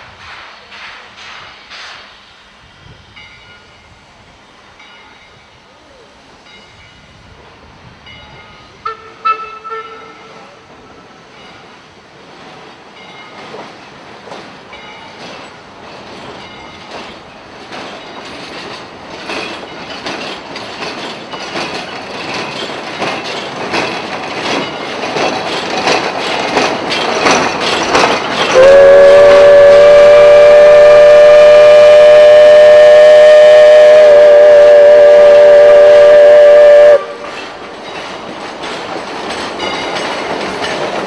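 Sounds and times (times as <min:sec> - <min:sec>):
steam train wheels clattering: 0:00.0 - 0:41.0
steam whistle blast: 0:08.8 - 0:10.5, 0:28.5 - 0:37.3.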